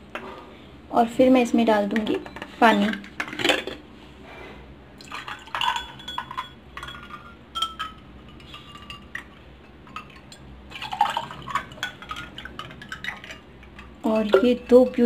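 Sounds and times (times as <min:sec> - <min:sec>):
ice clinking against glass: 0:05.0 - 0:15.0
water pouring into glasses: 0:05.0 - 0:15.0.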